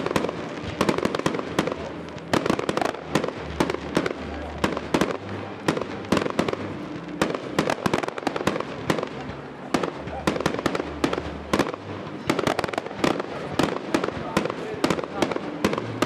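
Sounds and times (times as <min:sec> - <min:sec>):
fireworks bursting: 0:00.0 - 0:16.0.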